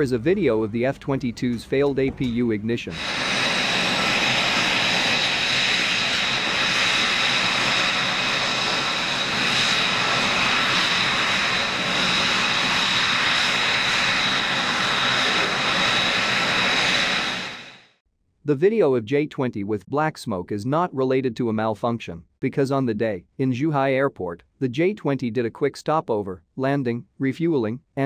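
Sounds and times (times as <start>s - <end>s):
rushing noise: 2.8s - 17.9s
high-pitched jet turbine whine: 2.8s - 18.0s.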